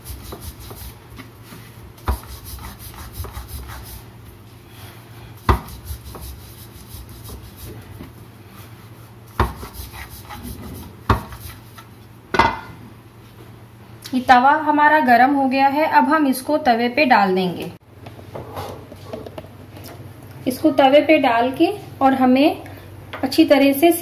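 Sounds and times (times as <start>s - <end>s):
rolling pin rubbing on dough: 0.0s - 4.2s, 5.4s - 12.0s.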